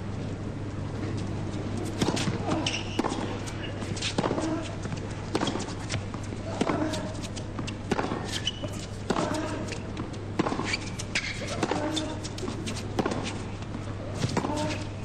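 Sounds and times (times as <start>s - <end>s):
tennis racket hitting ball: 1.8s - 9.8s, 10.4s - 13.4s, 14.2s - 14.9s.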